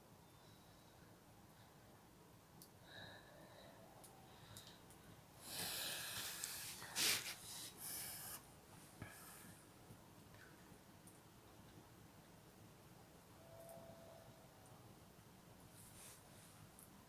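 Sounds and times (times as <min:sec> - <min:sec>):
breathy rushing hiss: 0:05.4 - 0:09.6.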